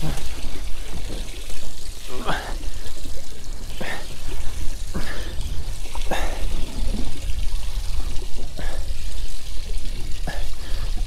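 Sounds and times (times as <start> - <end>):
water lapping against boat hull: 0.0 - 11.0
water splashes: 0.0 - 11.0.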